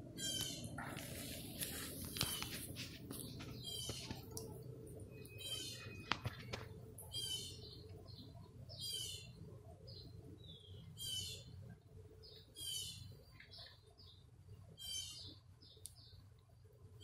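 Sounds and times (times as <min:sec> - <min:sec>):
bird single chirps: 0:05.1 - 0:07.8.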